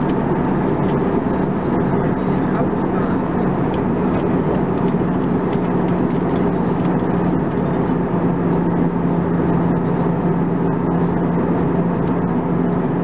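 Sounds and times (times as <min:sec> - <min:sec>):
aircraft cabin engine rush: 0:00.0 - 0:13.0
constant low hum: 0:00.0 - 0:13.0.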